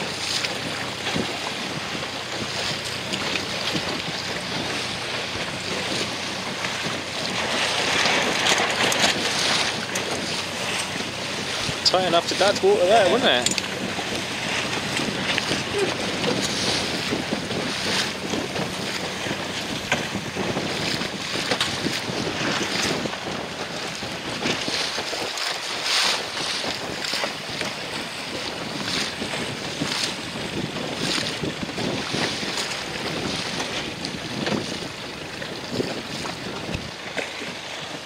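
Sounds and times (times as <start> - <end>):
water splashing and slapping: 0.0 - 38.0
wind buffeting microphone: 0.0 - 38.0.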